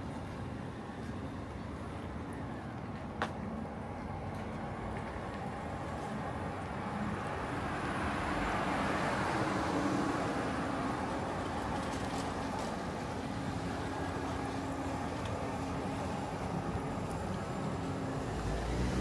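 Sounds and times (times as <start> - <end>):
road noise hum: 0.0 - 19.0
car passing by: 7.0 - 19.0.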